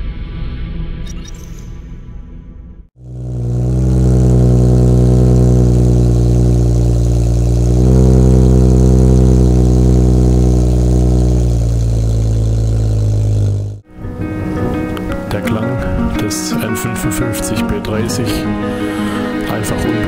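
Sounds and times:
car engine idling: 3.0 - 13.8.

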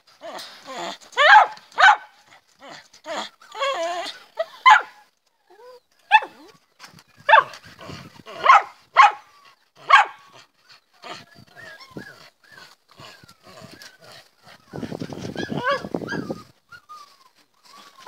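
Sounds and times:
dog barking: 1.2 - 2.1, 4.6 - 5.0, 8.4 - 10.2.

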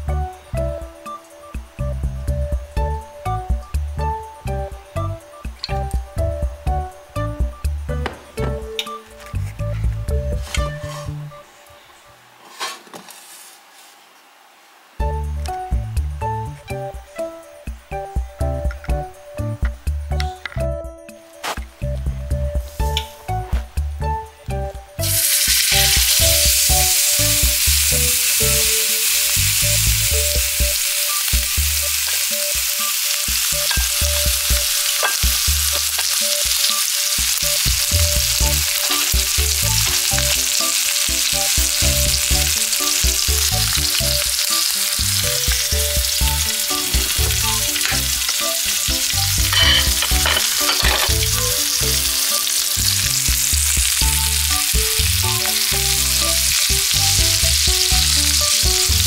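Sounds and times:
steak sizzling in oil: 25.0 - 59.0.

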